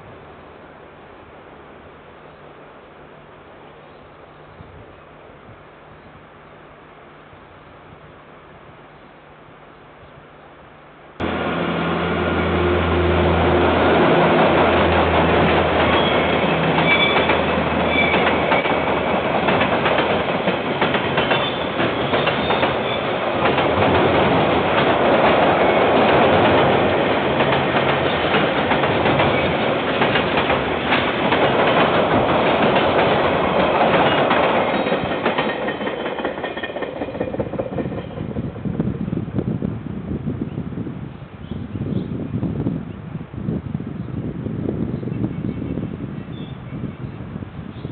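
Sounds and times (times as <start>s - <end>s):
diesel locomotive engine drone: 11.0s - 40.2s
freight wagons rumbling past: 11.2s - 38.8s.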